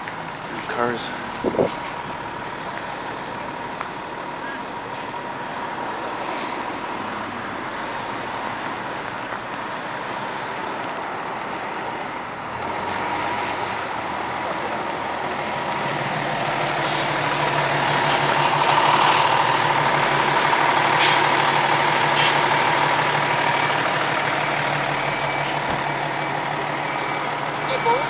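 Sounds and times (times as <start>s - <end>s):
diesel truck engine running: 0.0s - 28.0s
air brake hisses: 6.2s - 6.6s, 16.8s - 17.2s, 22.2s - 22.4s
steady high tone: 24.9s - 28.0s.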